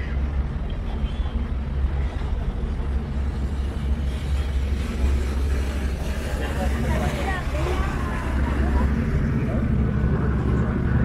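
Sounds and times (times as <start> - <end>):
boat engine droning: 0.0 - 11.0
water rushing: 0.0 - 11.0.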